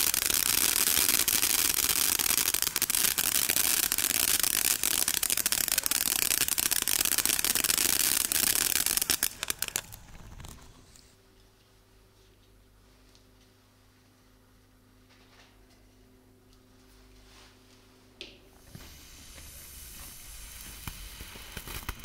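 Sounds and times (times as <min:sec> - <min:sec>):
firework fountain hissing and crackling: 0:00.0 - 0:11.1, 0:18.6 - 0:22.0.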